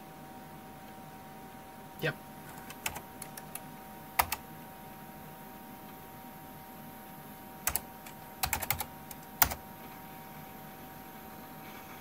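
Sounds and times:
computer keyboard typing: 0:02.5 - 0:04.5, 0:07.6 - 0:09.7.

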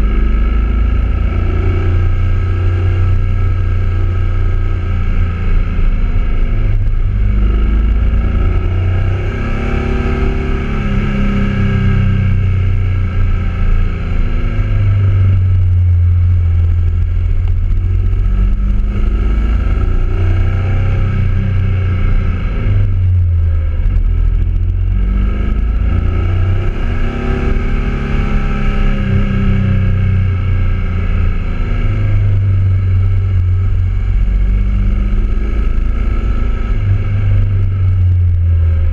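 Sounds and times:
motorcycle engine revving: 0:00.0 - 0:38.9
wind rumble on microphone: 0:00.0 - 0:38.9.

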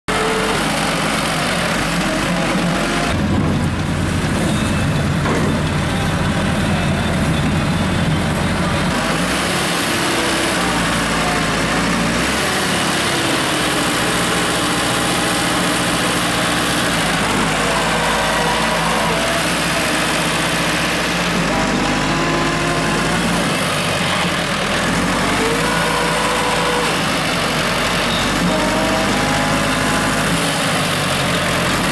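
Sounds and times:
tractor diesel engine: 0:00.0 - 0:31.9
excavator engine running: 0:00.1 - 0:31.9.

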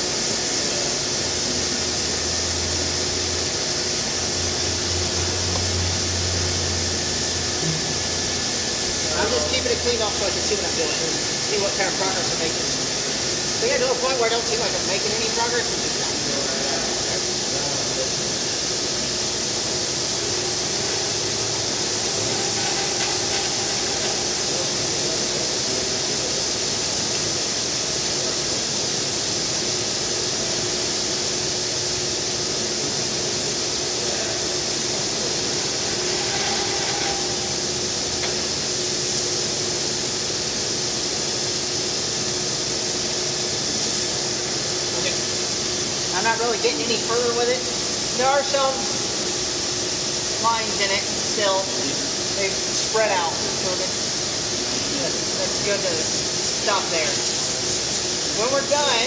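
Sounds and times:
router spindle loud hiss: 0:00.0 - 0:59.0.

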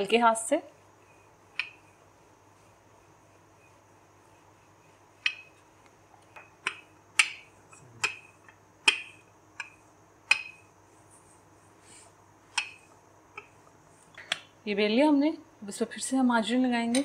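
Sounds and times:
rolling pin clicking on worktop: 0:06.2 - 0:10.6.

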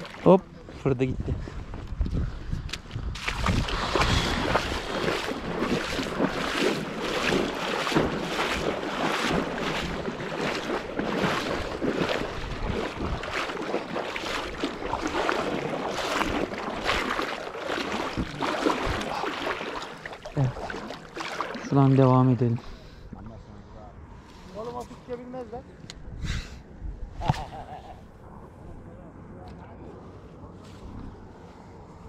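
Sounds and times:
wading through water: 0:00.0 - 0:01.8, 0:02.4 - 0:25.5
wind on microphone: 0:01.0 - 0:17.2.

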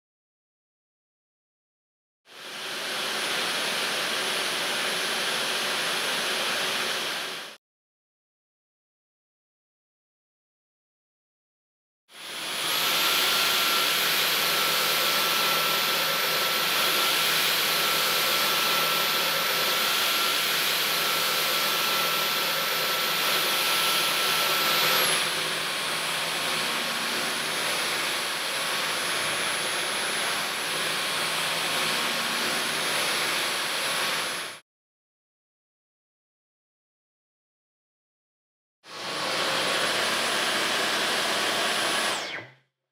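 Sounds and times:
stick vacuum running: 0:12.2 - 0:34.6, 0:38.9 - 0:42.6.

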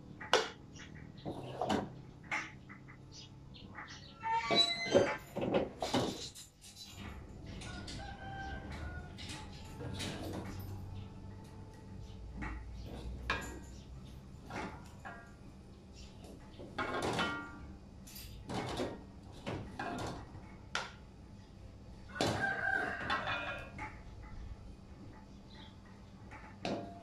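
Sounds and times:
rooster crowing: 0:07.6 - 0:09.5, 0:22.1 - 0:23.8.

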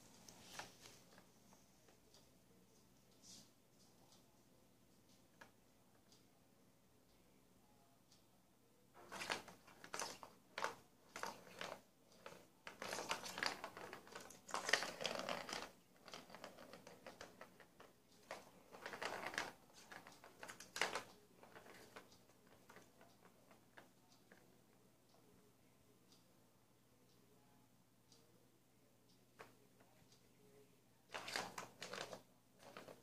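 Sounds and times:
plastic ball rattling in track: 0:09.0 - 0:22.1, 0:31.1 - 0:33.0.

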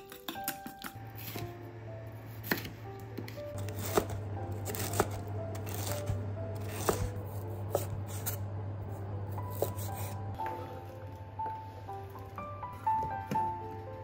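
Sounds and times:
background music: 0:00.0 - 0:14.0
knife cutting on wooden board: 0:06.6 - 0:07.1, 0:09.5 - 0:10.2.

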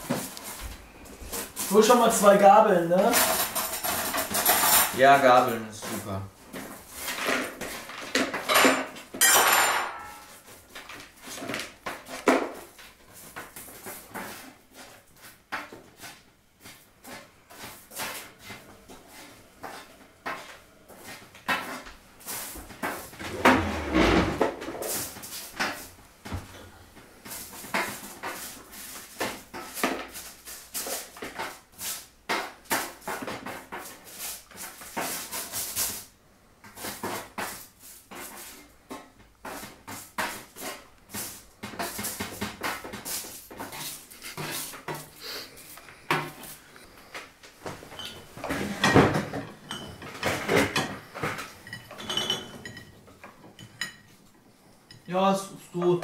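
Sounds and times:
spatula scraping baking tray: 0:13.2 - 0:25.9, 0:39.4 - 0:47.0.

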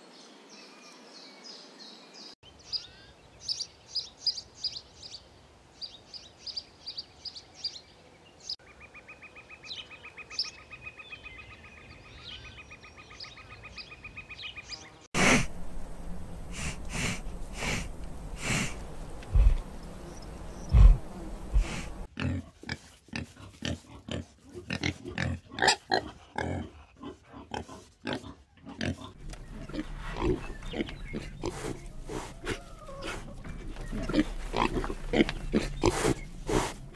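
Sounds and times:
rapidly pulsing buzz: 0:15.2 - 0:22.1
wild boar grunting and snuffling: 0:15.2 - 0:36.9
low thumps: 0:15.4 - 0:22.1
piglets grunting: 0:16.5 - 0:19.6, 0:20.6 - 0:36.9
bird chirps: 0:29.2 - 0:36.5.

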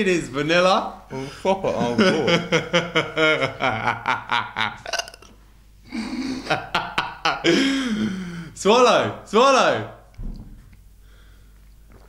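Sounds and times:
man laughing loudly: 0:01.6 - 0:05.3, 0:05.9 - 0:08.2
man gulping water: 0:04.8 - 0:05.4, 0:11.5 - 0:12.0.

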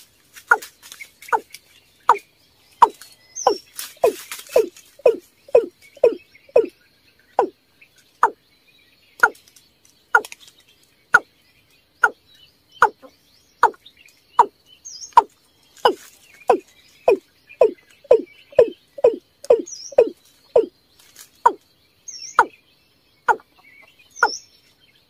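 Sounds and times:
bird calling descending notes: 0:02.8 - 0:06.7, 0:16.5 - 0:20.7.

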